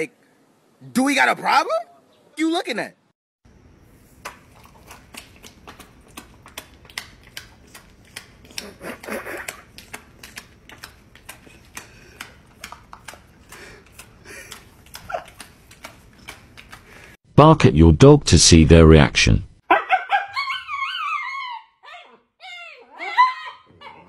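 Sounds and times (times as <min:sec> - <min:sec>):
dog chewing and smacking: 0:04.2 - 0:17.1.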